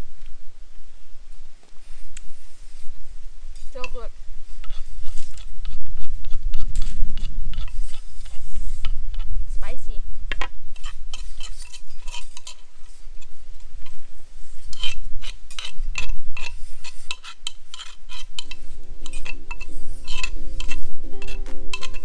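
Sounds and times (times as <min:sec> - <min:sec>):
utensils clinking against cookware: 0:15.6 - 0:22.0
background music with held notes: 0:18.5 - 0:22.0.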